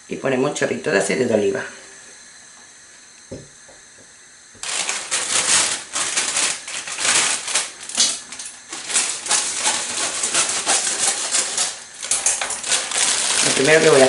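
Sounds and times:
oil crackling in a frying pan: 0:04.6 - 0:14.0.

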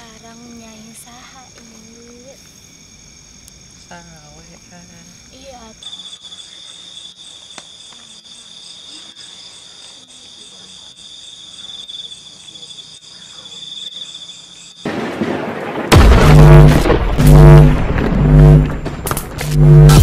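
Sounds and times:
crickets trilling: 0:00.0 - 0:19.0
booming intro sting music: 0:15.9 - 0:20.0.

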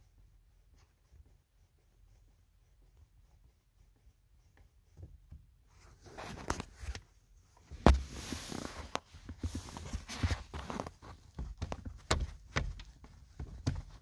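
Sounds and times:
foot tapping car pedals: 0:07.7 - 0:14.0.

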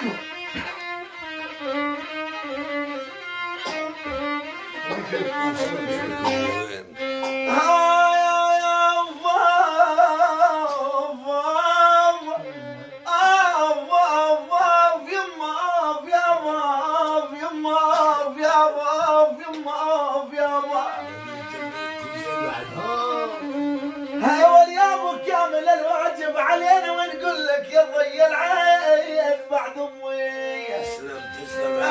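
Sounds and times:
violin melody: 0:00.0 - 0:31.9
person singing: 0:07.4 - 0:31.9.

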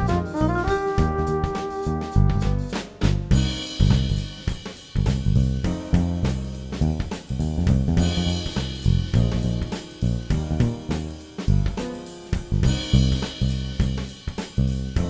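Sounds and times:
bass: 0:00.0 - 0:15.0
drum kit beat: 0:00.0 - 0:15.0.

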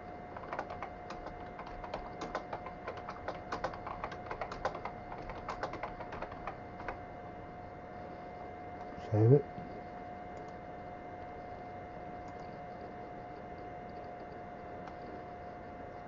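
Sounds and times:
keyboard key clicks: 0:00.4 - 0:07.0.

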